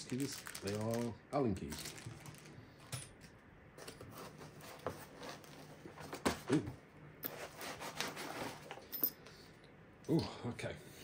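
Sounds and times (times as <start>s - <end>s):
foam rubbing and scraping: 7.4s - 8.7s.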